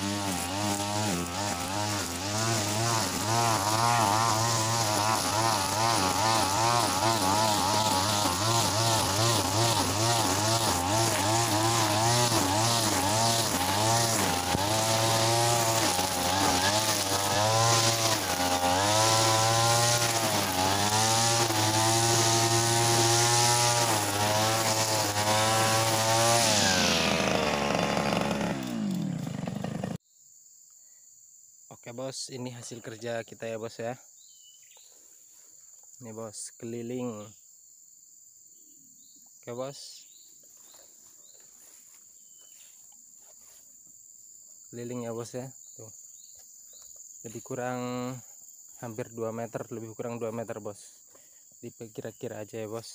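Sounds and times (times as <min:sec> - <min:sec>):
brush cutter engine revving: 0:00.0 - 0:30.0.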